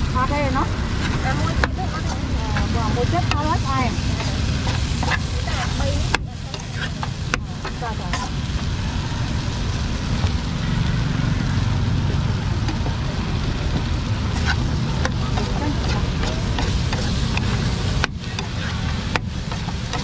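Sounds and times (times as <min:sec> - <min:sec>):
light sizzling: 0:00.0 - 0:20.0
steady low rumble: 0:00.0 - 0:20.0
metal spatula scraping a wok: 0:00.8 - 0:08.4, 0:14.2 - 0:20.0.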